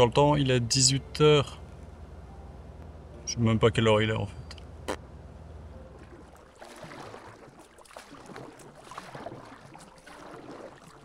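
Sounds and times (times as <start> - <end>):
paddle splashing in water: 6.0 - 11.0.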